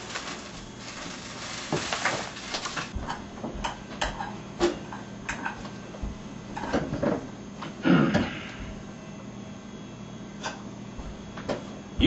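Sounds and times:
steady hiss: 0.0 - 2.9.

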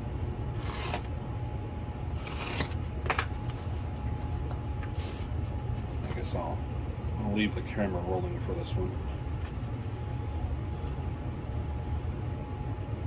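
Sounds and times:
steady low hum: 0.0 - 13.0
paper scraping rustles: 0.6 - 1.1, 2.2 - 5.5, 9.0 - 10.0.

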